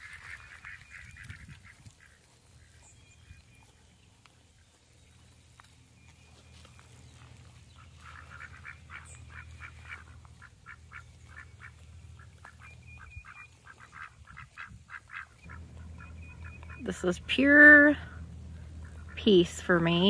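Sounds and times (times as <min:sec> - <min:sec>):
ducks quacking: 0:00.0 - 0:03.4, 0:07.5 - 0:20.0.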